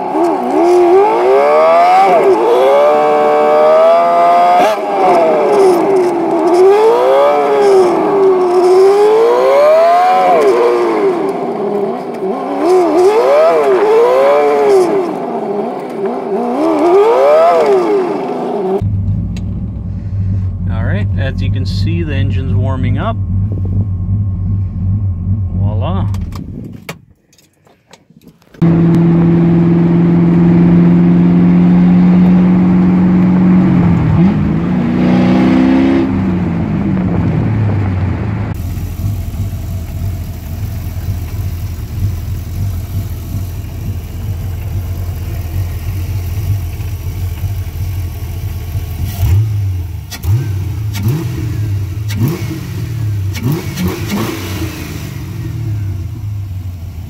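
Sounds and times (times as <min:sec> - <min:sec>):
engine revving: 0:00.0 - 0:26.4, 0:28.6 - 0:56.9
car engine idling: 0:18.8 - 0:26.6, 0:36.4 - 0:53.6, 0:54.9 - 0:57.0.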